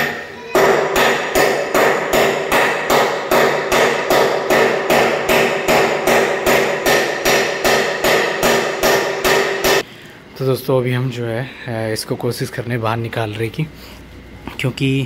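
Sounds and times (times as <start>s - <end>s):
hammer blows ringing on metal: 0.0s - 9.8s.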